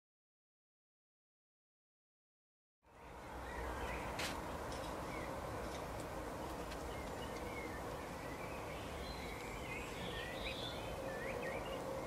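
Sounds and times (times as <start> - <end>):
goldfinches twittering: 6.8 - 12.0.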